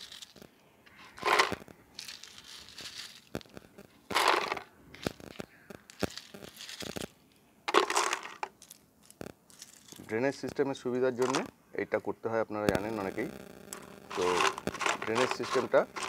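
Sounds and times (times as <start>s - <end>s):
stones clicking together: 1.1s - 7.1s
stones clattering into plastic bucket: 1.2s - 3.5s, 4.1s - 5.2s, 7.7s - 8.8s, 11.2s - 11.5s, 14.1s - 16.0s.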